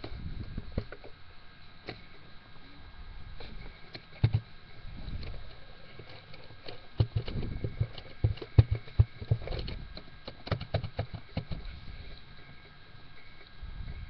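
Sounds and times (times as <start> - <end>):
faint electronic whine: 0.0 - 14.0
microphone handling bumps and clicks: 7.0 - 11.8.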